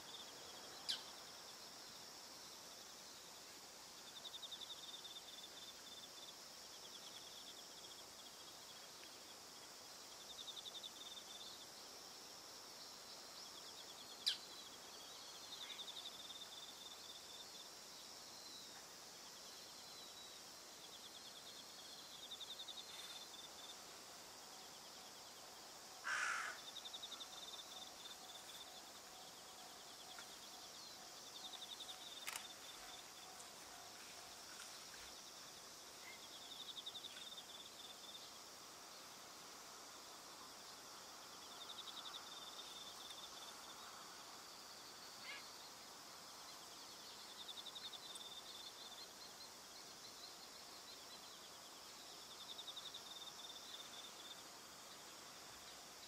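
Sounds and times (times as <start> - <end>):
crickets trilling: 0.0 - 56.0
crow cawing: 26.0 - 26.7.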